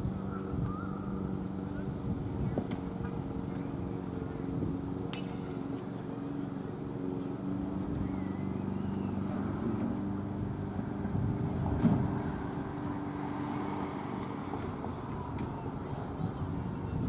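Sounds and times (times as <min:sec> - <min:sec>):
steady low hum: 0:00.0 - 0:17.0
crowd voices: 0:10.8 - 0:17.0.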